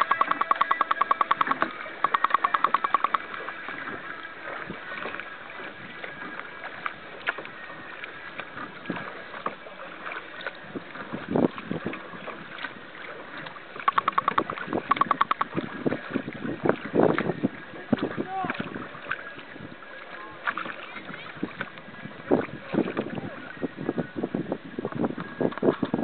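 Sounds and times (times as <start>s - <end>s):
small knocks on hull: 0.0s - 4.0s, 13.4s - 17.3s
water lapping against boat hull: 0.0s - 26.0s
water splashes: 0.0s - 26.0s.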